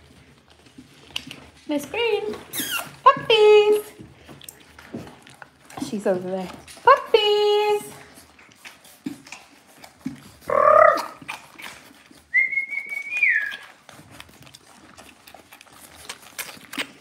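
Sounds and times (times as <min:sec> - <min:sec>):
person whistling high note: 0:12.3 - 0:13.6.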